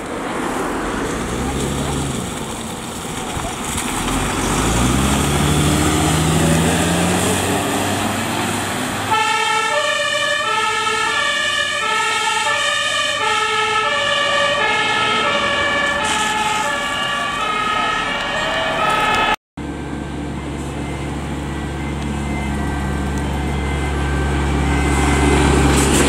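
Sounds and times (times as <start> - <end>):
fire engine diesel accelerating: 0.0 - 26.0
two-tone siren: 9.0 - 25.9.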